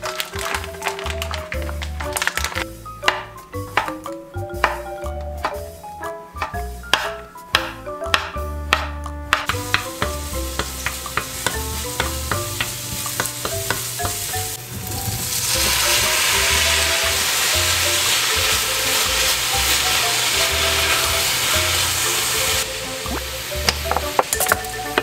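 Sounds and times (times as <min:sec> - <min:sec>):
food sizzling in frying pan: 0:00.0 - 0:02.6, 0:09.5 - 0:25.0.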